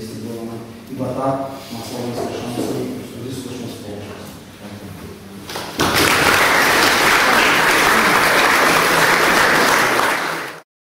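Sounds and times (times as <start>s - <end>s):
audience applause: 5.8s - 10.7s.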